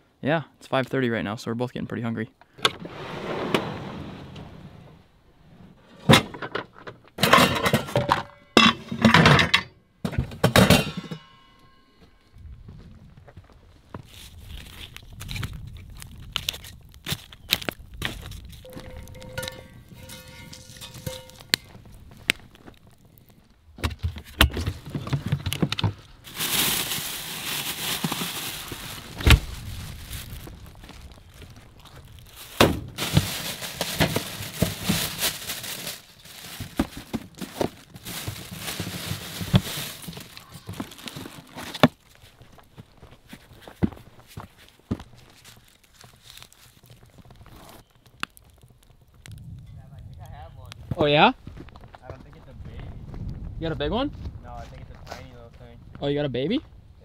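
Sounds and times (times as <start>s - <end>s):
pots and pans clanking: 7.2s - 11.6s, 18.7s - 21.7s
plastic bags rustling: 14.0s - 23.4s, 24.7s - 48.6s
clicks and knocks of groceries: 23.8s - 30.6s, 31.9s - 42.1s.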